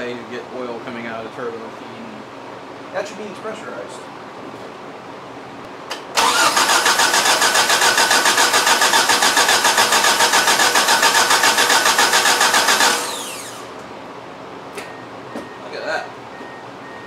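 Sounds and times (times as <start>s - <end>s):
starter motor cranking engine: 5.9s - 13.8s.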